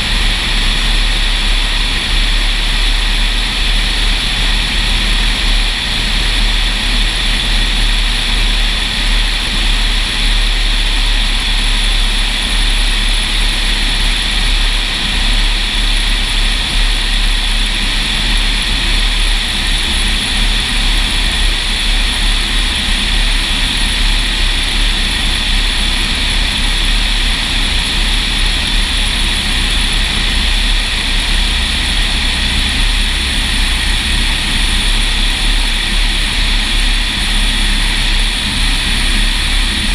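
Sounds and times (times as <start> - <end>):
airplane propeller engine droning: 0.0 - 39.9.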